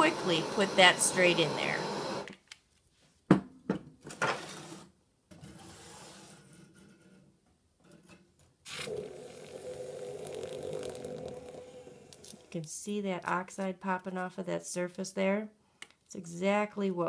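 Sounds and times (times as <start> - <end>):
hot metal sizzling in water: 8.7 - 12.5.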